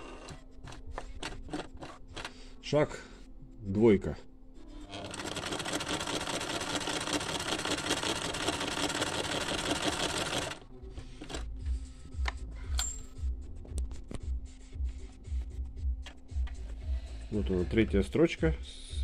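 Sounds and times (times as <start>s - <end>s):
sewing machine running: 4.9s - 10.6s.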